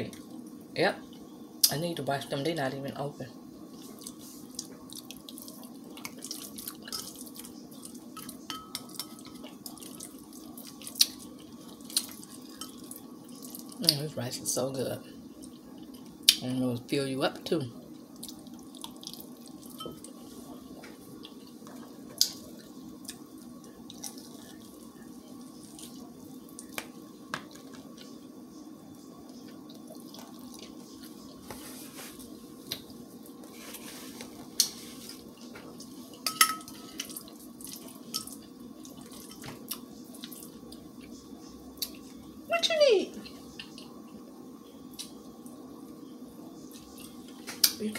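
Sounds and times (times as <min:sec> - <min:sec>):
steady low hum: 0:00.0 - 0:47.9
person chewing rice: 0:03.8 - 0:08.4, 0:18.2 - 0:19.8, 0:21.1 - 0:28.2.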